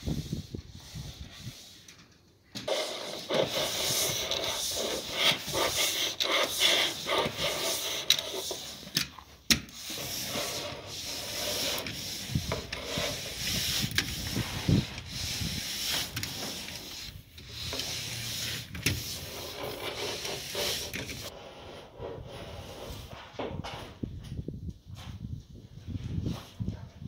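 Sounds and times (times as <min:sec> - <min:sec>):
hand tool scraping wood: 0:02.6 - 0:23.4.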